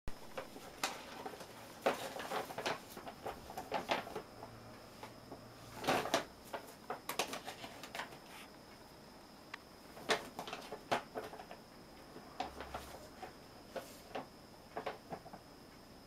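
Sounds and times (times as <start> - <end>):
paper bag rustling: 0.2 - 4.3, 4.9 - 8.5.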